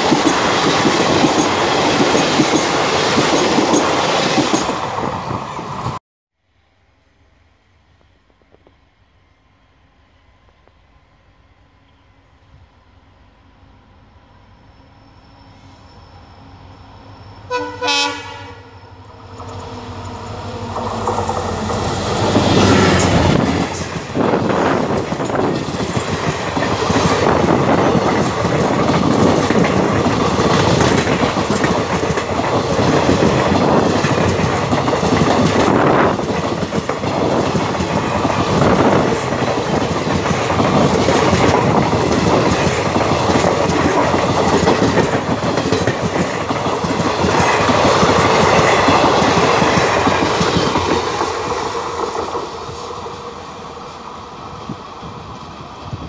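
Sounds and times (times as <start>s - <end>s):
diesel locomotive passing: 0.0s - 6.0s, 6.8s - 56.0s
wheels clacking over rail joints: 19.3s - 52.7s.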